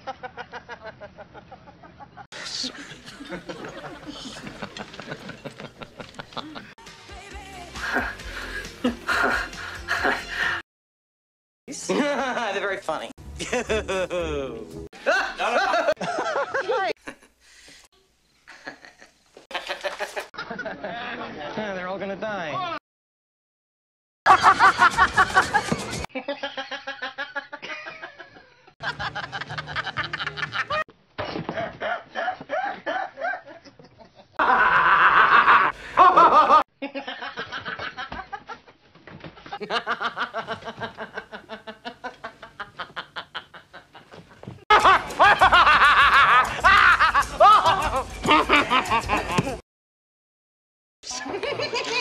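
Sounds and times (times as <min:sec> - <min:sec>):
man laughing: 0:02.4 - 0:06.8, 0:08.8 - 0:10.6, 0:13.4 - 0:17.2, 0:31.6 - 0:38.6, 0:44.7 - 0:49.6.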